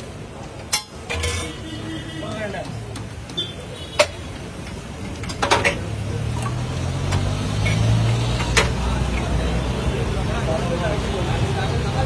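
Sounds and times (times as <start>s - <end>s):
road traffic engine rumble: 0.0s - 12.0s
metal utensils clicking: 0.6s - 1.7s.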